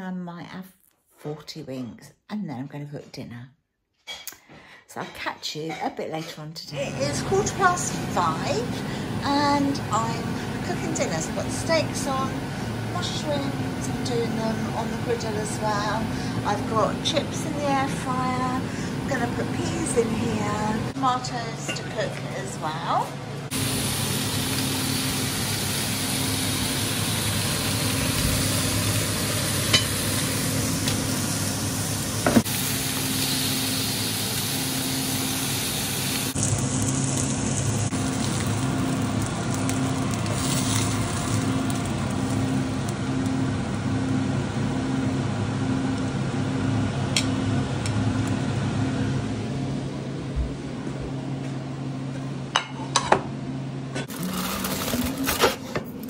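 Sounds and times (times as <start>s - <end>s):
steady low hum: 6.8s - 56.0s
food sizzling on griddle pan: 23.5s - 43.0s.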